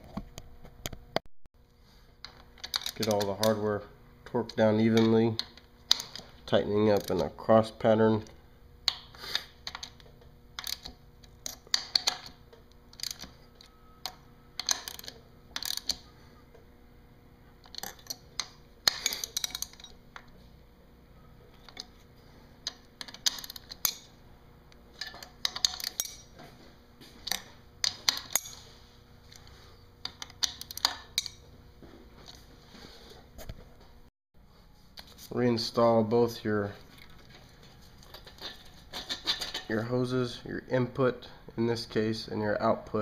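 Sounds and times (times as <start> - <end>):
socket ratchet clicking: 10.6 - 13.3.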